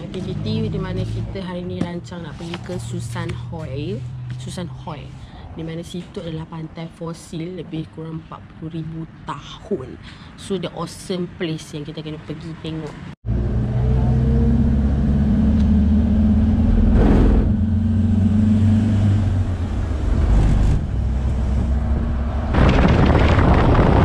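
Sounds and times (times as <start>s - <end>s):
road noise: 0.0s - 24.0s
truck engine drone: 13.2s - 24.0s.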